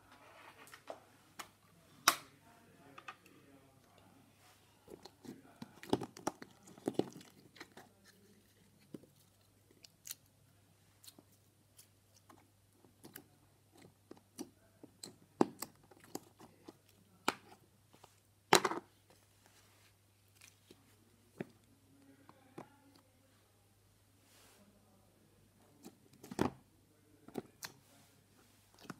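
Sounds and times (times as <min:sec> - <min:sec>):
plastic tubs clicking and crinkling: 0:04.9 - 0:09.9.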